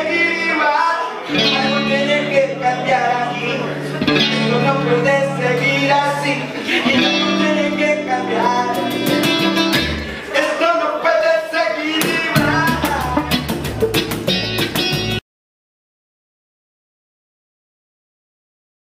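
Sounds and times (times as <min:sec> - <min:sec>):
strummed acoustic guitar: 0:00.0 - 0:10.3
person singing: 0:00.0 - 0:14.6.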